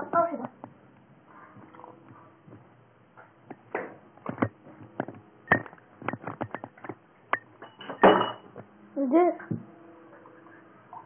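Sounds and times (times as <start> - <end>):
clicks and knocks: 3.2 - 8.4.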